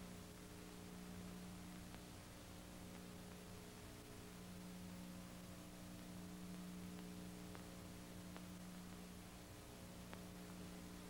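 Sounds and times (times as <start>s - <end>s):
film soundtrack hum and hiss: 0.0s - 11.0s
faint clicks: 1.2s - 2.2s, 5.8s - 10.9s.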